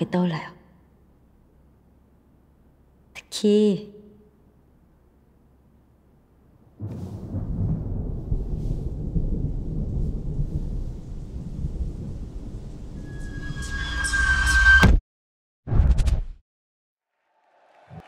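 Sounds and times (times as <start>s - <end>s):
low rumbling noise: 4.8s - 13.6s.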